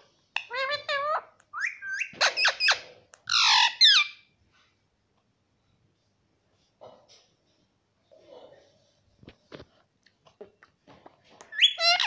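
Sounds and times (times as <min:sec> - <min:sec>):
parakeet calling and squawking: 0:00.4 - 0:04.3, 0:11.4 - 0:12.0.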